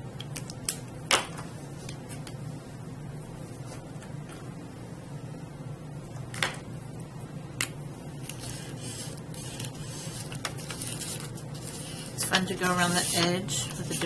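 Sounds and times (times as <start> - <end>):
steady low hum: 0.0 - 14.0
marker scribbling on paper: 11.6 - 14.0.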